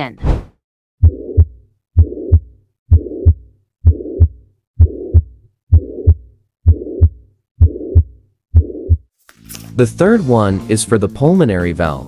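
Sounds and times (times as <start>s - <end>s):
heart murmur: 1.0s - 9.1s
heartbeat thumps through stethoscope: 1.0s - 9.1s.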